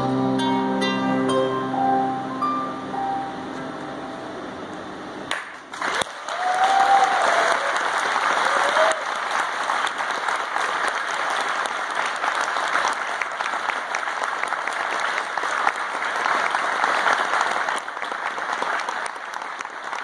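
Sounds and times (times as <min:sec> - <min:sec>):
audience applauding: 0:05.3 - 0:20.0.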